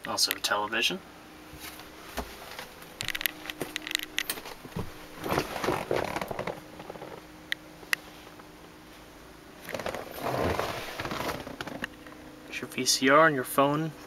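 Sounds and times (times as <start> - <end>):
clicks scrapes and rustling in car: 1.6 - 7.3, 9.6 - 11.9.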